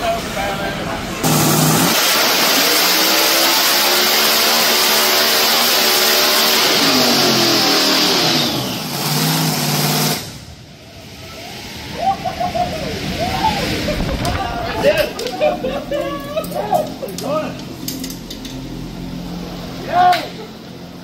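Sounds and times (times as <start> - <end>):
supercharger whine: 0.0 - 21.0
drag car engine running hard: 0.2 - 11.1.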